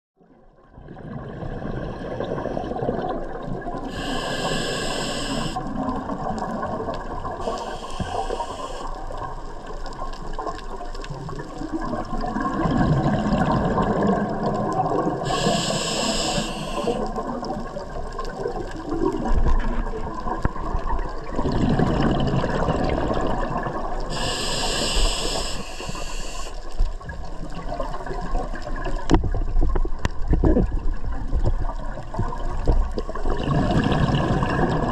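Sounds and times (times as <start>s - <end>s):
exhaled bubbles rumbling underwater: 0.2s - 34.9s
regulator hiss on inhale: 3.9s - 5.7s, 7.4s - 9.2s, 15.2s - 17.2s, 24.1s - 26.8s.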